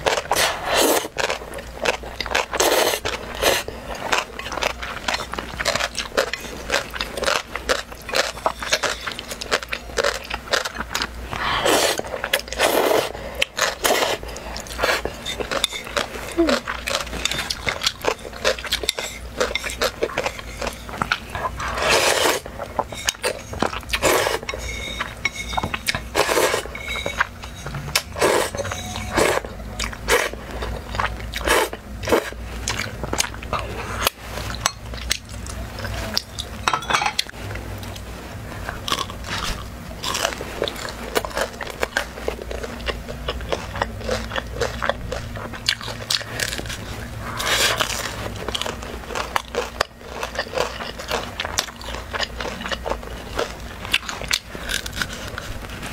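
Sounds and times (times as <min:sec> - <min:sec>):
wet chewing and slurping: 0:00.0 - 0:36.6, 0:37.2 - 0:55.9.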